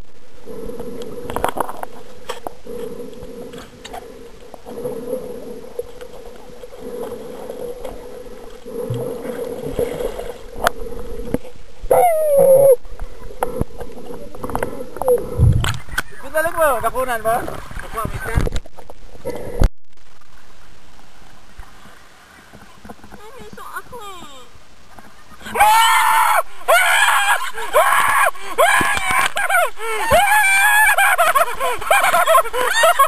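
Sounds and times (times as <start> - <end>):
water sloshing underwater: 0.0 - 25.6
steady hum: 0.0 - 33.0.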